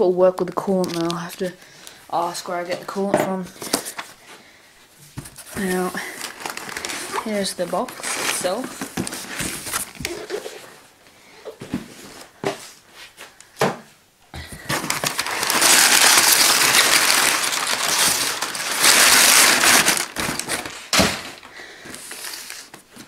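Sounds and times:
cardboard crinkling and scraping: 5.0s - 10.9s, 14.5s - 23.0s.

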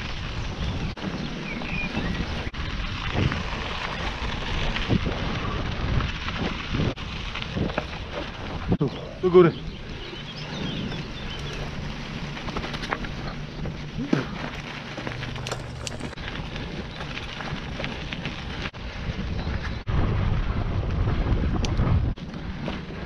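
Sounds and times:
bicycle tyres crunching on gravel: 0.0s - 23.0s
wind rumbling on microphone: 0.0s - 23.0s.

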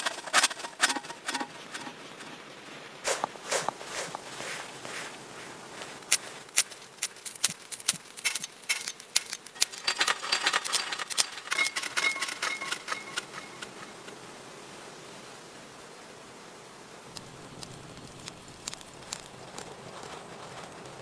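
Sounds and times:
dry tinder crackling in hands: 3.0s - 14.1s, 17.1s - 21.0s.

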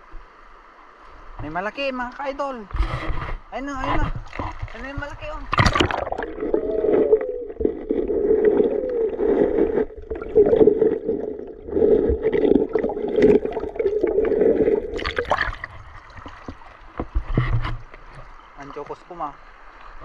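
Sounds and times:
muffled underwater stream gurgling: 3.8s - 20.0s
water splashing rush: 3.9s - 17.2s.

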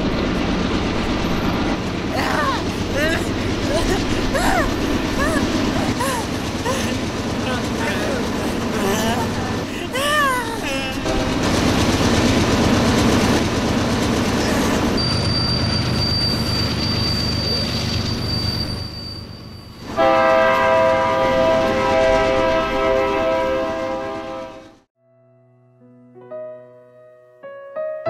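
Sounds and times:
train rumbling: 0.0s - 24.9s
train horn blast: 11.0s - 11.5s, 19.8s - 24.9s
high steady squeal: 14.9s - 19.8s.

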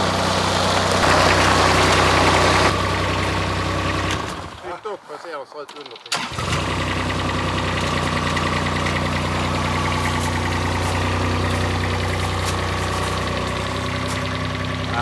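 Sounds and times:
loader engine running steadily: 0.0s - 4.7s, 6.3s - 15.0s.

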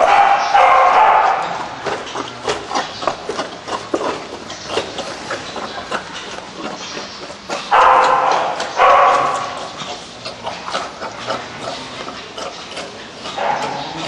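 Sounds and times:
pig chewing: 0.0s - 14.0s
pig crying loudly: 13.0s - 14.0s.

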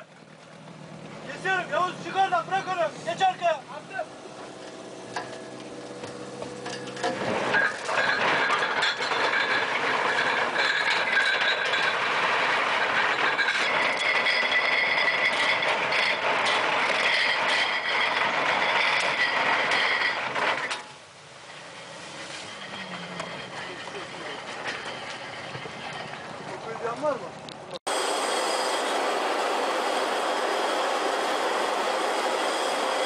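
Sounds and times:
anchor chain rattling over steel: 6.6s - 26.6s.

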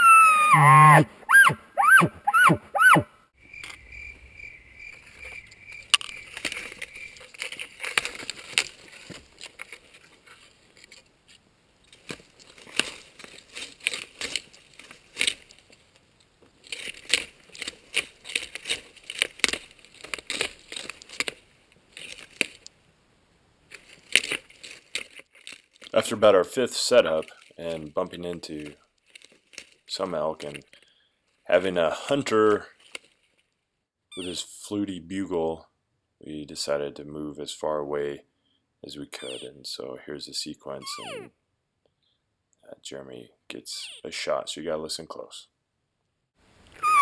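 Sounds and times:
high chirps: 0.0s - 6.3s, 39.2s - 39.5s, 40.8s - 41.4s, 46.8s - 47.0s
footsteps on pine needles and twigs: 5.0s - 10.9s, 11.9s - 22.6s, 23.7s - 26.0s, 28.6s - 29.9s.

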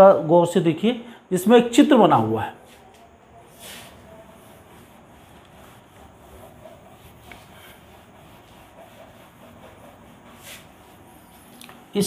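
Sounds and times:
duster rubbing on whiteboard: 2.5s - 12.0s.

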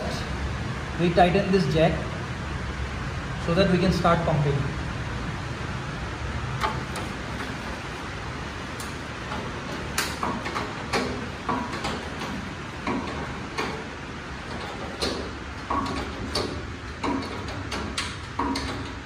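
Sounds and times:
floor jack pumping clicks: 8.8s - 19.0s.

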